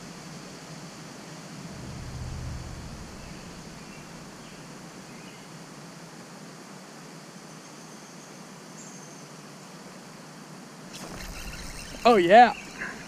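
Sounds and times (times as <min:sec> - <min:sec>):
outdoor ambient hiss: 0:00.0 - 0:13.0
faint high chirps: 0:10.9 - 0:13.0.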